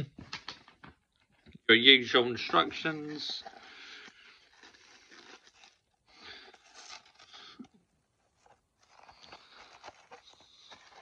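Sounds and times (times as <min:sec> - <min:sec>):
polystyrene tray crunching: 0:02.4 - 0:07.6
tissue paper rustling: 0:02.4 - 0:11.0.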